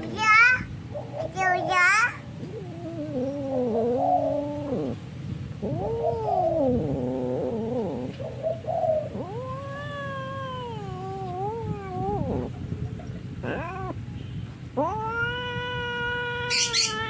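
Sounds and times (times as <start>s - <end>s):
cat yowling: 0.0s - 5.0s, 5.6s - 8.1s, 9.0s - 12.6s, 13.4s - 14.0s, 14.8s - 17.0s.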